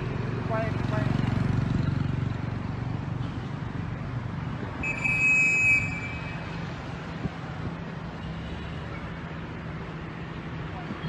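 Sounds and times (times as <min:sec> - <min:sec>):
street traffic: 0:00.0 - 0:11.0.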